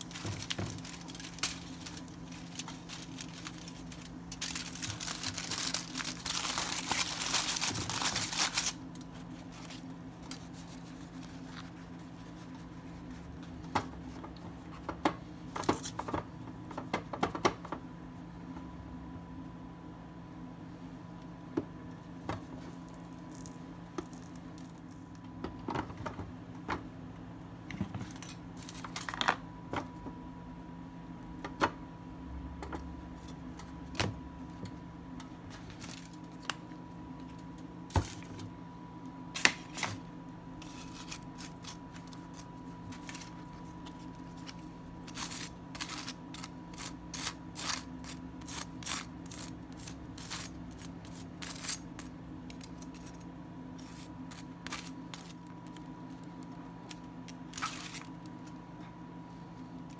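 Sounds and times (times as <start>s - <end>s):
utensils and packaging clicking: 0.0s - 11.6s, 28.0s - 29.4s, 40.6s - 58.6s
steady low hum: 0.0s - 59.9s.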